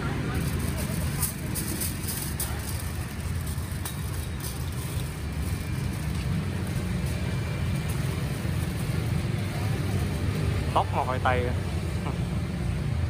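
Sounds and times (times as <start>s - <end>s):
road traffic rumble: 0.0s - 13.0s.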